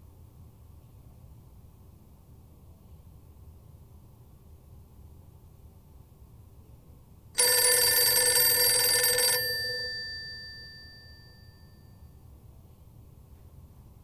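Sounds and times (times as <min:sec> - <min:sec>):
telephone bell ringing: 0:07.4 - 0:12.0.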